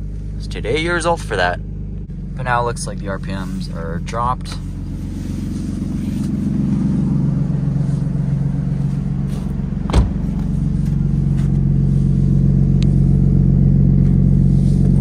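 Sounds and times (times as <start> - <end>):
car engine idling: 0.0 - 15.0
car door shutting: 9.3 - 11.6.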